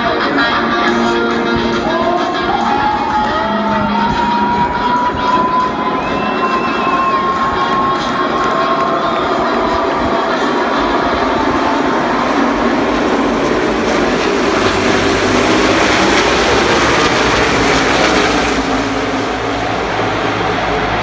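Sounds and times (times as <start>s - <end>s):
pack of race cars passing: 0.0s - 21.0s.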